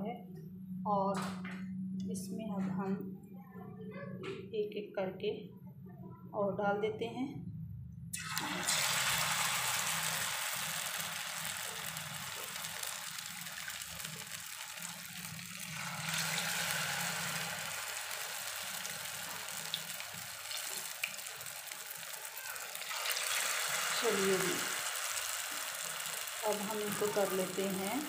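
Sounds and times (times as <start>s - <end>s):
oil sizzling in a pan: 8.2s - 28.0s.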